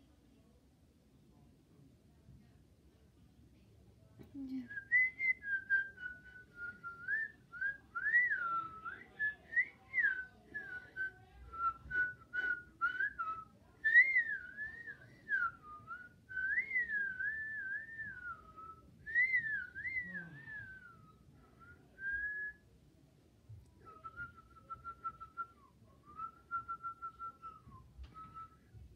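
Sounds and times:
person whistling a tune: 4.7 - 22.6, 23.8 - 28.8.

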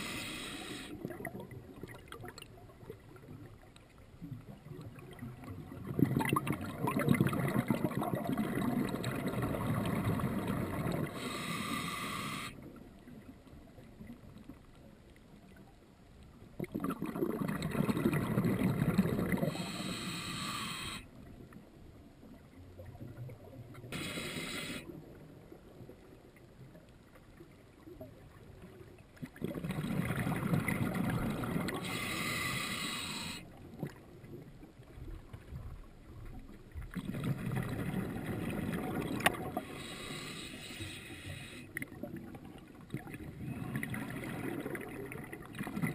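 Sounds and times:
exhaled bubbles rushing: 4.5 - 11.2, 16.6 - 19.6, 29.3 - 31.9, 36.8 - 39.6, 41.9 - 45.9.

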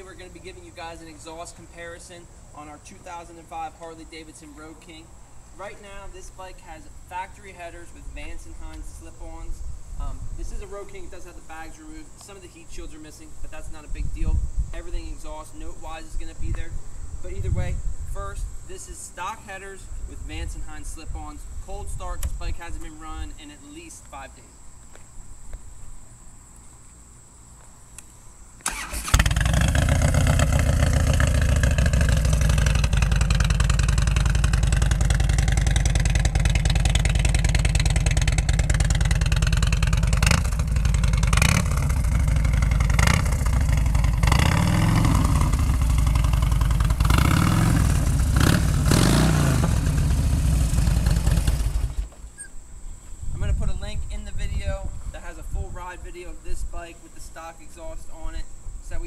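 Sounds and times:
motorcycle engine starting and revving: 28.6 - 52.5.

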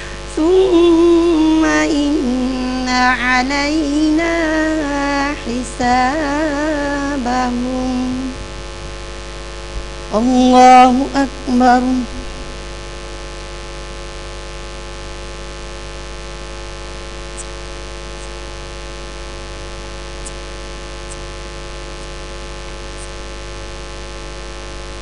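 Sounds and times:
electrical mains hum and static: 0.0 - 25.0
faint high ticks: 20.2 - 21.3, 23.0 - 23.2.

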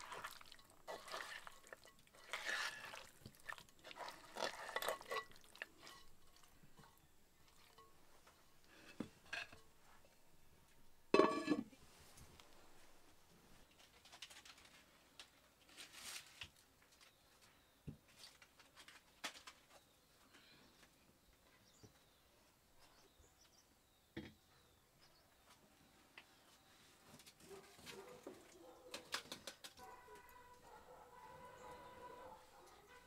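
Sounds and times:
faint knocks and rustles: 5.2 - 22.2.

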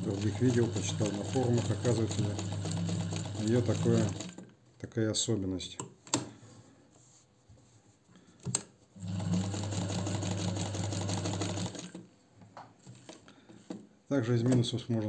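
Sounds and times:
sewing machine stitching: 0.0 - 4.4, 9.0 - 12.0.

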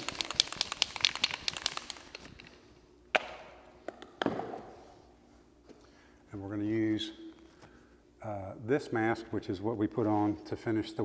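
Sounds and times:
objects knocking on hard floor: 3.2 - 4.7.

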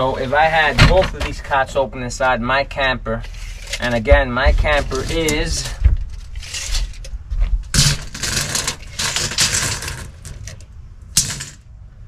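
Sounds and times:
tape measure scraping and clattering: 3.2 - 11.6.

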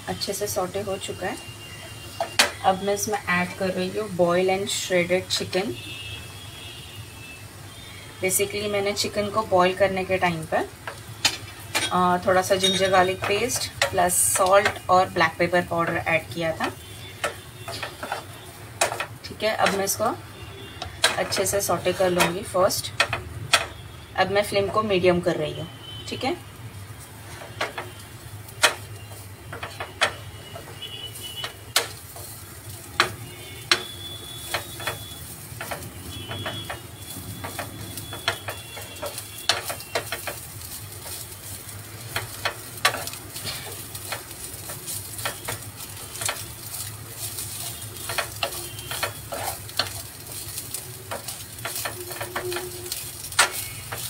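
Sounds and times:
chicken sizzling in a pan: 0.0 - 24.9, 25.8 - 54.0
wooden spatula scraping a pan: 10.9 - 23.8, 27.0 - 54.0.

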